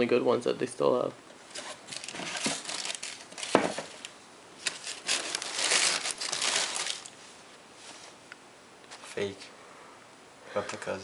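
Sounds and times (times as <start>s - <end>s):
tissue paper crinkling: 1.5s - 4.0s, 4.6s - 7.2s.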